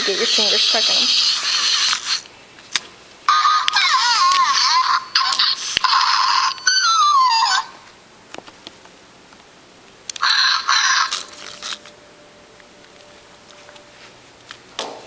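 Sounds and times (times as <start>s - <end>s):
toy hamster electronic chirps: 3.3s - 7.7s, 10.2s - 11.4s.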